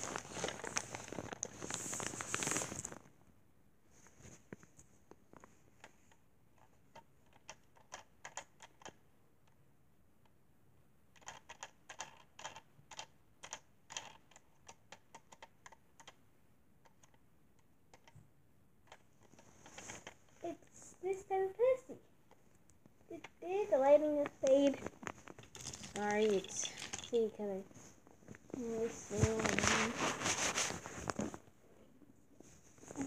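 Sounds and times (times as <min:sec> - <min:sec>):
hands handling plastic toy train: 0:24.1 - 0:31.4.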